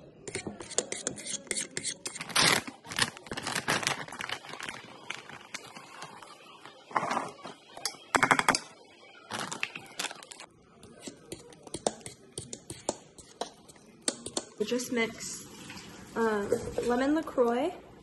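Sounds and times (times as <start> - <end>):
fork stirring in a bowl: 0.2 - 2.3, 10.8 - 14.6
food packaging crinkling: 2.2 - 7.4, 9.2 - 10.5.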